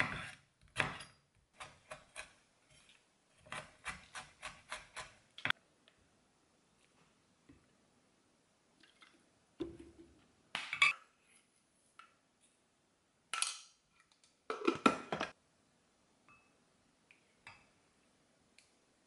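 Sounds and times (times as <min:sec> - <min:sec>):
kitchen items knocking and clinking: 0:14.5 - 0:15.4.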